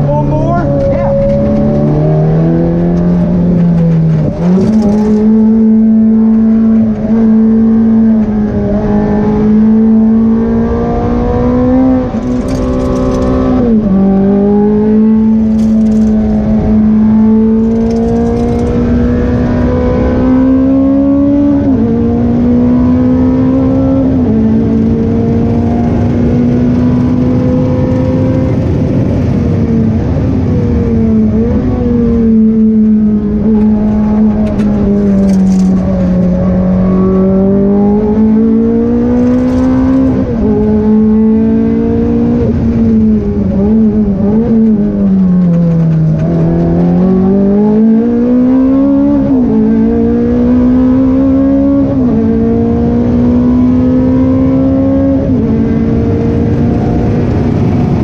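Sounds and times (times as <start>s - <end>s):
race car engine revving: 0.0s - 58.0s
quick gear changes: 0.1s - 8.8s, 11.1s - 20.2s, 32.1s - 51.4s.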